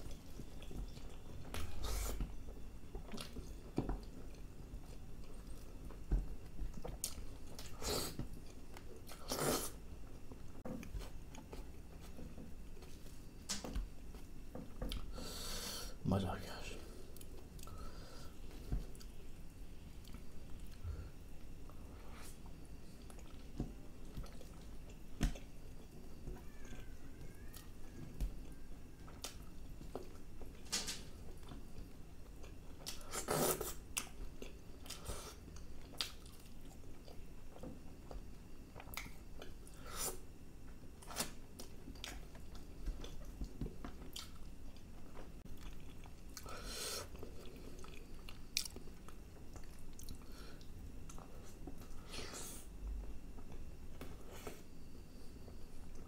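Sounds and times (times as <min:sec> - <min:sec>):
chewing food: 0:21.7 - 0:39.8, 0:40.7 - 0:52.0.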